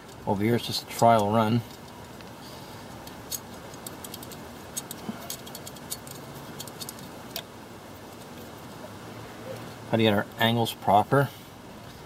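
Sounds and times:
metal throttle linkage clicking: 0:03.0 - 0:07.5.

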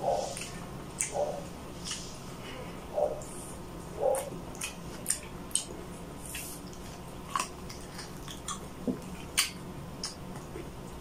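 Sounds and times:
wet chewing and lip smacking: 0:00.1 - 0:02.1, 0:04.0 - 0:10.8.

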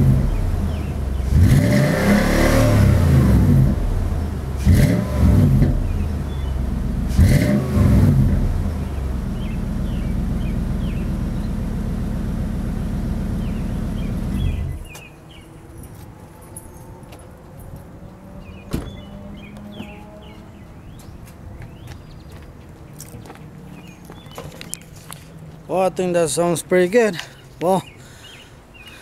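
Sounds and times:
truck engine revving and idling: 0:00.0 - 0:14.9.

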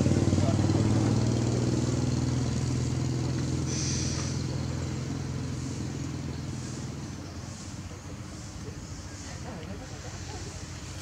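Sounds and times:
vehicle engine running: 0:00.0 - 0:11.0
brief hiss: 0:03.7 - 0:04.4.

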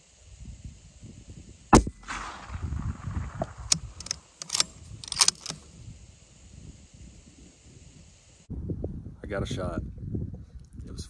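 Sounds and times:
rifle shot echoing off hills: 0:01.7 - 0:05.6
rifle bolt clicks and clacks: 0:03.4 - 0:05.6.

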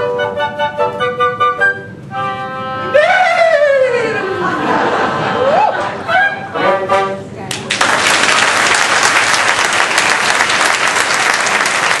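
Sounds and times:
wind quintet chord: 0:00.0 - 0:03.2, 0:06.1 - 0:07.4
audience applause: 0:07.5 - 0:12.0.

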